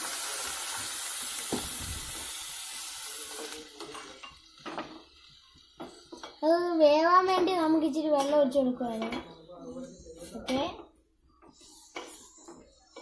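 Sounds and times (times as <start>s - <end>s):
cucumber sizzling in a pot: 0.0s - 8.7s.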